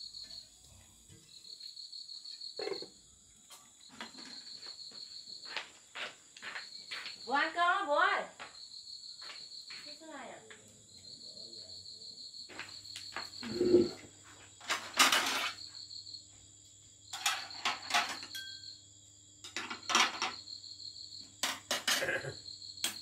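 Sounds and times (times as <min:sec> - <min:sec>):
cricket chirping: 0:00.0 - 0:23.0
dishes and utensils clattering: 0:14.6 - 0:15.6, 0:17.1 - 0:18.6, 0:19.4 - 0:20.4, 0:21.4 - 0:22.3.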